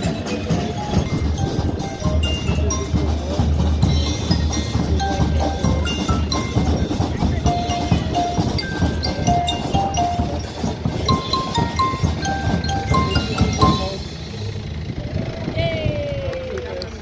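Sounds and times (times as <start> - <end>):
marimba and xylophone music: 0.0 - 14.4
tractor diesel engine drone: 0.0 - 15.6.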